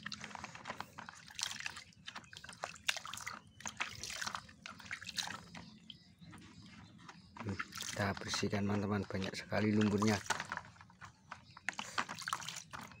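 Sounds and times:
water sloshing in a basin: 0.0 - 13.0
water dripping: 1.1 - 6.0, 7.4 - 10.3.

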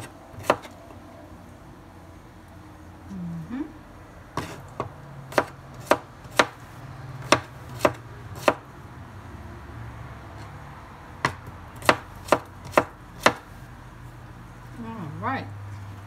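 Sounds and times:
knife chopping on wooden board: 0.0 - 0.8, 4.4 - 6.6, 7.2 - 8.6, 11.2 - 13.5.

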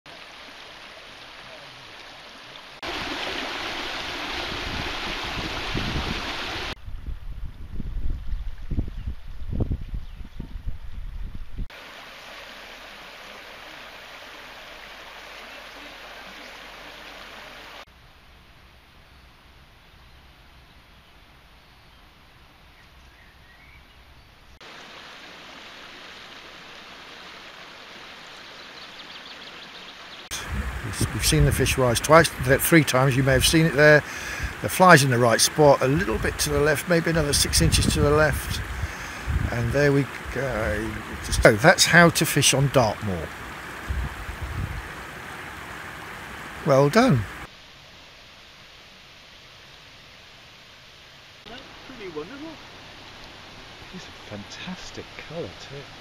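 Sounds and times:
river water rushing over stones: 0.1 - 6.8, 11.7 - 17.9, 24.6 - 56.0
stream running over rocks: 0.1 - 6.8, 11.7 - 56.0.

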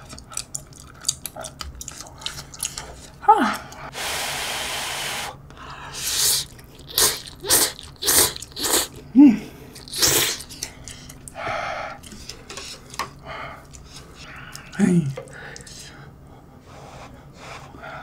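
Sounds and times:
noodles being slurped: 6.0 - 9.0.

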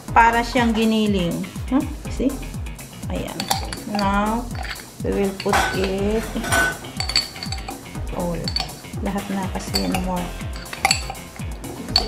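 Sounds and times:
background music with steady beat: 0.0 - 12.0
spoon scraping glass jar: 3.3 - 9.0, 9.6 - 12.0
sharp ringing clinks: 3.4 - 9.0, 9.7 - 12.0.

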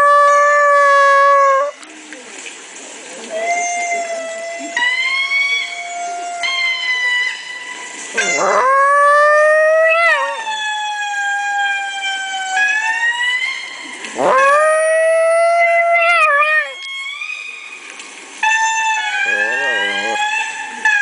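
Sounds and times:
dog howling: 0.0 - 1.8, 8.2 - 12.7, 14.2 - 16.9, 19.2 - 20.4
lemur calls from laptop speaker: 19.2 - 20.2.

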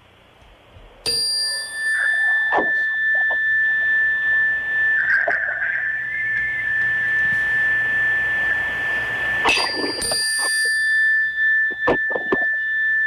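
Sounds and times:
high-pitched electronic tone: 1.1 - 13.0
interference crackles: 2.0 - 10.6, 11.7 - 12.7.

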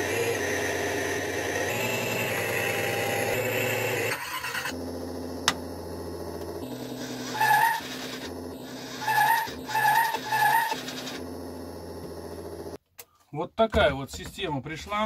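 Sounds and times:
simulated engine from small speaker: 0.0 - 12.8
high-pitched squeal effect: 6.6 - 11.2.

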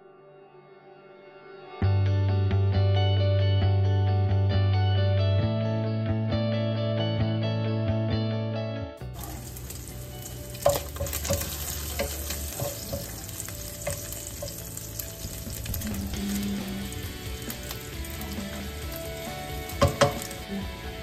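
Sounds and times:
guitar music: 0.0 - 21.0
bacon sizzling in a frying pan: 9.1 - 21.0
spatula knocking against pan: 10.6 - 14.7, 19.7 - 20.4.

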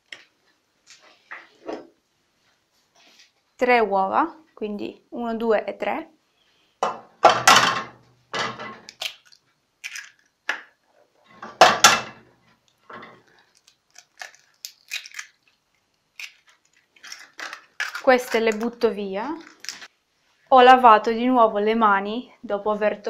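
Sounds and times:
eggshell crunching: 8.8 - 10.8, 12.7 - 19.9.

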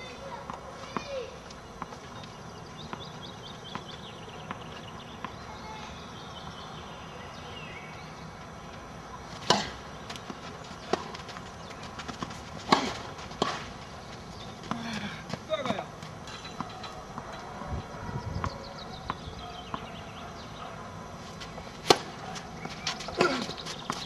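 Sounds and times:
outdoor background noise: 0.0 - 24.0
tennis ball struck: 9.4 - 9.8, 12.6 - 13.7, 21.8 - 24.0.

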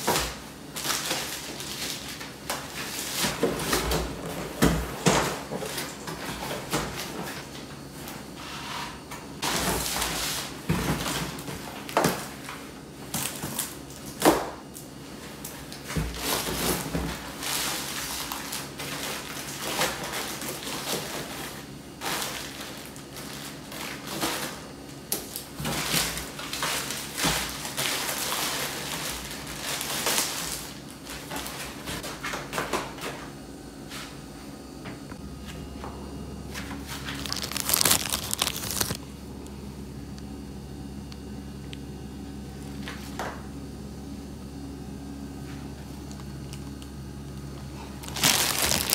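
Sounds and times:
packaging rustling: 36.9 - 39.0, 47.9 - 48.9.

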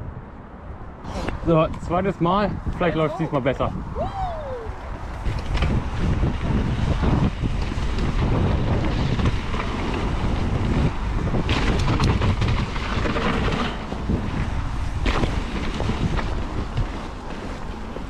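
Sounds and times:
wind buffeting the microphone: 0.0 - 18.0
bike tyres on dirt trail: 1.0 - 18.0
bike rattling: 4.4 - 18.0.

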